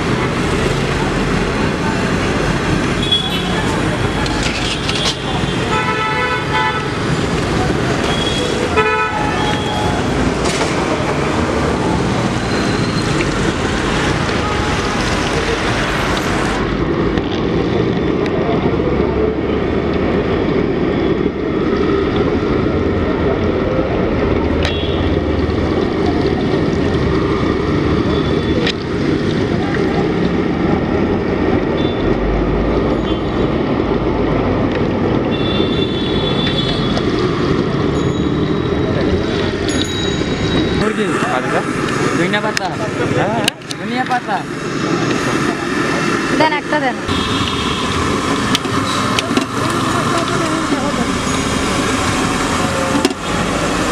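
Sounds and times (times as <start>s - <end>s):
street traffic: 0.0s - 53.9s
car horns honking: 3.0s - 3.8s, 4.7s - 7.2s, 8.0s - 10.2s, 47.1s - 50.2s.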